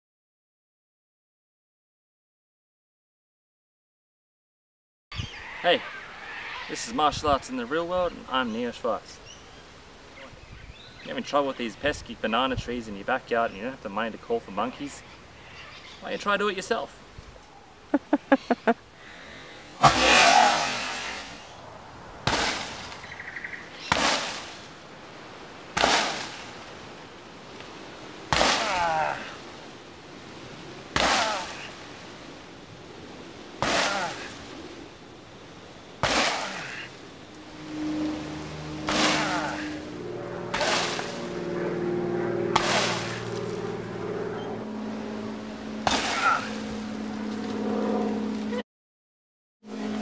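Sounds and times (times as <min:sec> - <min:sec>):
leaves rustling: 0:05.2 - 0:48.6
tree trunk snapping: 0:22.2 - 0:23.1, 0:23.8 - 0:24.6, 0:25.7 - 0:26.6, 0:28.3 - 0:29.0, 0:30.9 - 0:31.6, 0:33.6 - 0:34.4, 0:36.0 - 0:36.7, 0:38.9 - 0:39.6, 0:42.6 - 0:43.6, 0:45.8 - 0:46.6
kicks thudding on tree trunk: 0:45.8 - 0:46.5.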